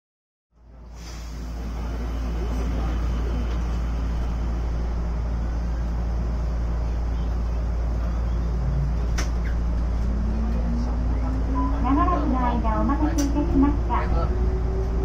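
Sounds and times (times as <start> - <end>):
railcar equipment hum: 0.6 - 15.0
low rising tone: 8.0 - 12.6.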